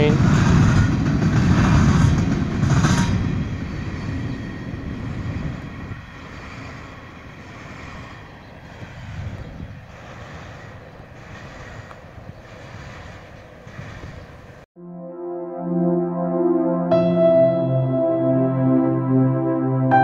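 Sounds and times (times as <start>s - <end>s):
freight train rumbling past: 0.0s - 14.7s.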